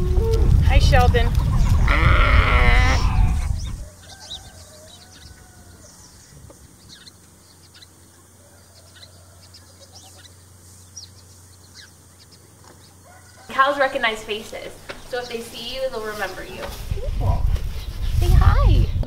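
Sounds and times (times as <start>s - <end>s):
chickens clucking: 1.3s - 1.9s, 3.0s - 13.8s.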